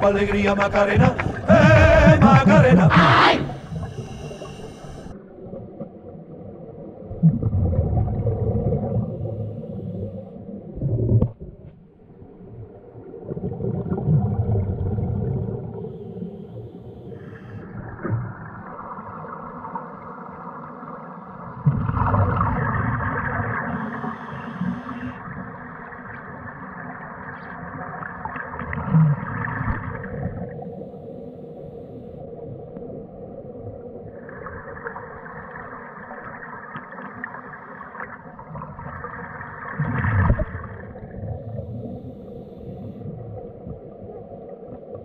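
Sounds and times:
underwater regulator bubbles: 0.0 - 5.1, 7.1 - 11.6
faint steady hum: 0.0 - 5.6, 8.2 - 10.8, 14.8 - 20.5, 22.6 - 26.0, 29.5 - 36.4, 40.3 - 45.0.

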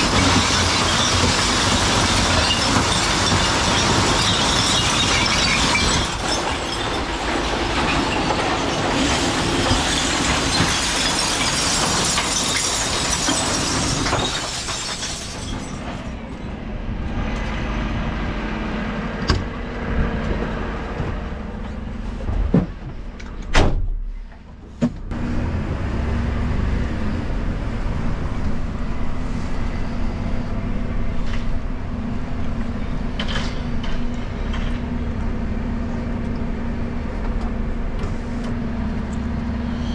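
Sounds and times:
glass bottles crashing and crunching: 0.0 - 16.2.

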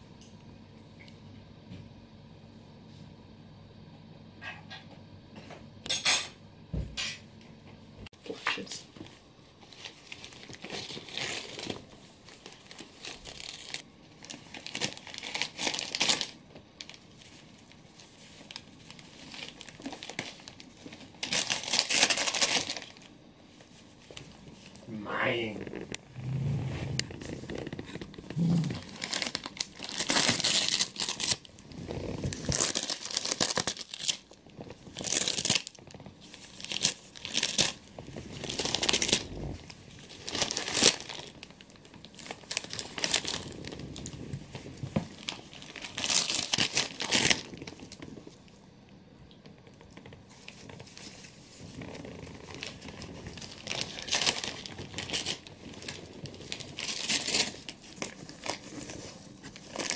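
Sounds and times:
dog tearing wrapping paper: 9.7 - 23.1, 27.2 - 48.3, 50.3 - 59.9.

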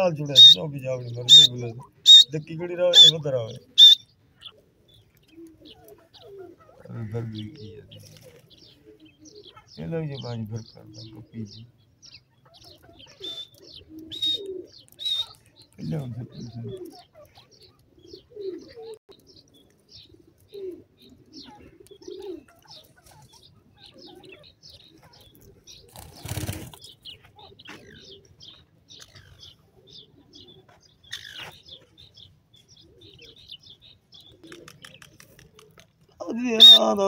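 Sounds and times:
low cooing calls: 0.0 - 37.0
small birds chirping: 0.0 - 37.0
bird wings flapping: 25.9 - 26.9, 34.4 - 36.2.

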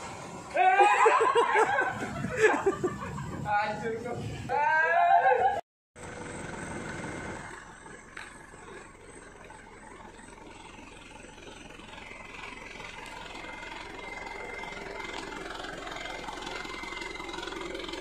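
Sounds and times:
thin steady whine: 5.4 - 18.0
diesel truck engine idling: 6.0 - 18.0.

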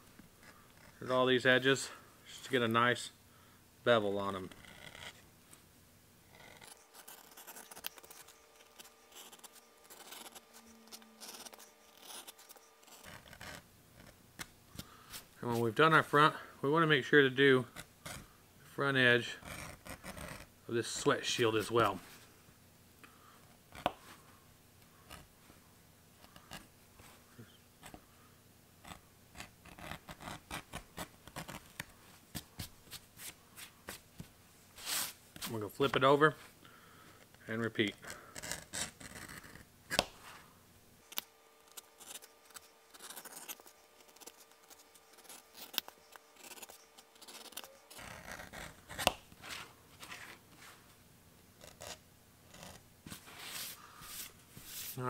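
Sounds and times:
edge tool scraping leather: 4.4 - 5.2, 6.3 - 15.7, 17.6 - 18.3, 19.3 - 21.9, 28.8 - 34.0, 37.8 - 40.2, 41.1 - 50.7.

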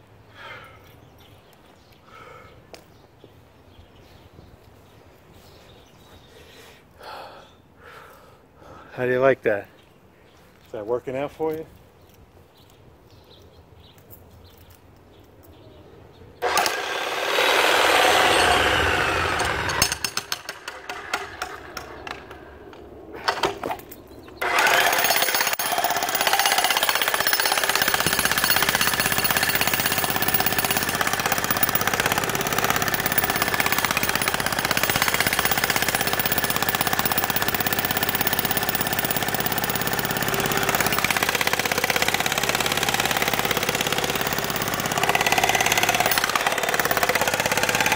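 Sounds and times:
jackhammer breaking concrete: 16.4 - 22.4, 24.4 - 47.9.

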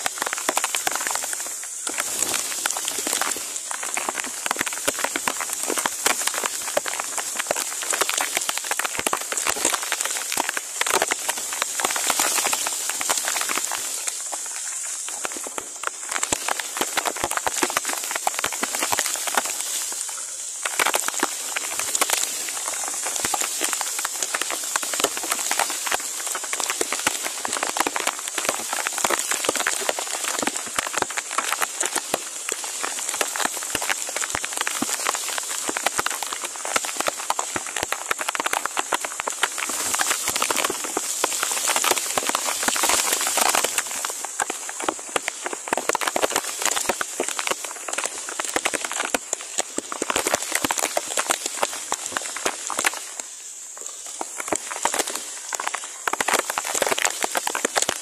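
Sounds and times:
rain falling on foliage: 0.0 - 58.0.

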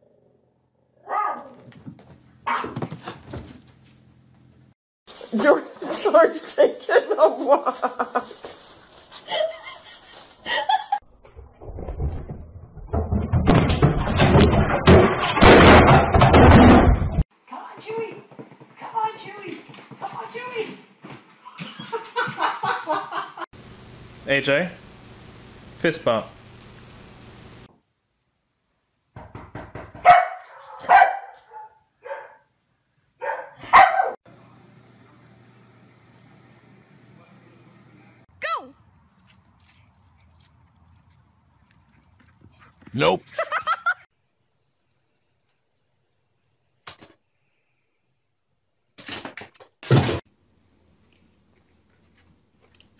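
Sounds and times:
dog barking: 1.0 - 1.7, 2.5 - 2.8, 30.0 - 32.5, 33.2 - 34.2
rapid clatter of knocks and bangs: 11.7 - 17.2, 29.2 - 30.1.

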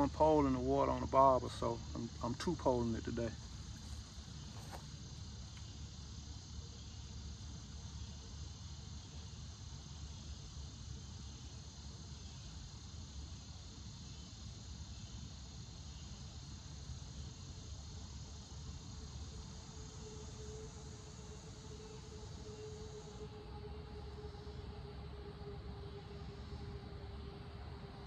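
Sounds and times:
insects chirring: 0.0 - 28.0
low steady rumble: 17.2 - 28.0.

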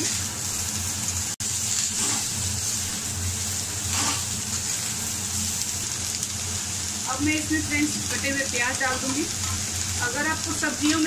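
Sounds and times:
vegetables sizzling in hot oil: 0.0 - 11.0
spatula scraping: 1.8 - 2.8, 3.8 - 4.8.

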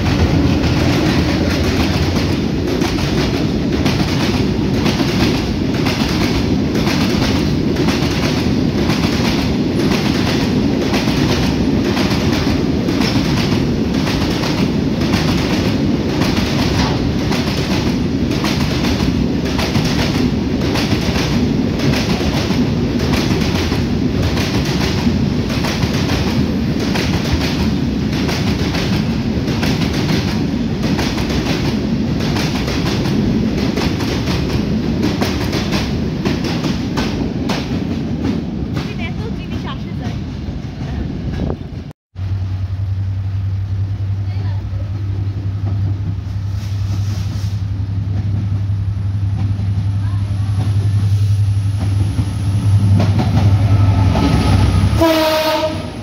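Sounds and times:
wheels clickety-clack: 0.0 - 41.6
train wheels rumbling on rail: 0.0 - 56.0.

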